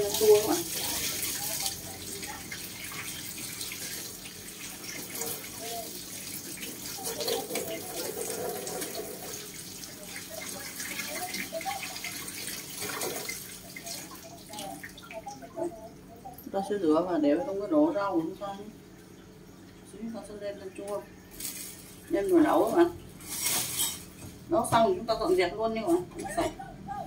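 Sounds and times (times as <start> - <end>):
tap water splashing into sink: 0.0 - 15.4.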